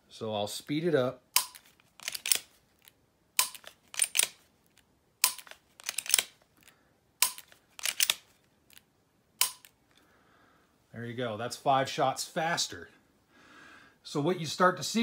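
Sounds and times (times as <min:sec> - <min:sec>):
pistol trigger clicks: 0:01.4 - 0:02.5, 0:03.4 - 0:04.4, 0:05.2 - 0:06.4, 0:07.2 - 0:08.2, 0:09.4 - 0:09.8
pistol slide racking scrape: 0:01.4 - 0:02.6, 0:03.4 - 0:08.3.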